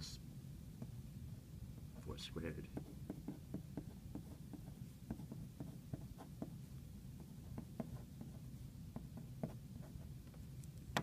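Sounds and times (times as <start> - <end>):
low steady hum: 0.0 - 11.0
pen scratching on paper: 2.0 - 10.1.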